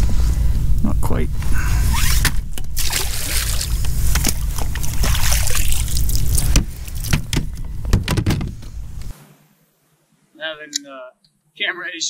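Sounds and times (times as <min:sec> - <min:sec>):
steady low rumble: 0:00.0 - 0:09.1
fish splashing into water: 0:02.7 - 0:07.1
plastic board knocking and clattering: 0:06.6 - 0:08.7.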